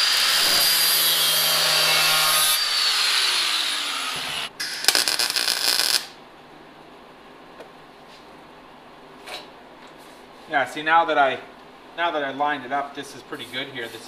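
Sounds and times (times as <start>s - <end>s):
angle grinder grinding metal: 0.0s - 4.5s
welder crackling: 4.6s - 6.2s.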